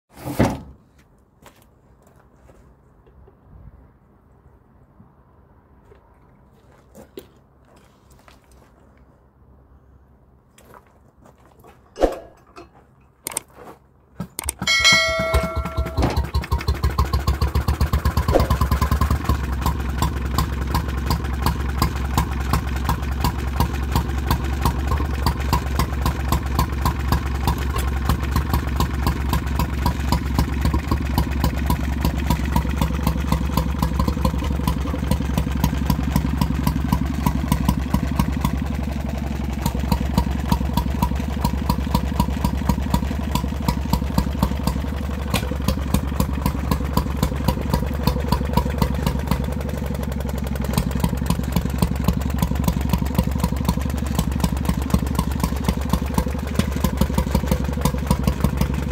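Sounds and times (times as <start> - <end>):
engine clicks: 12.2 - 58.9
single-cylinder engine running: 14.2 - 58.9
brief ringing tone: 14.6 - 16.3.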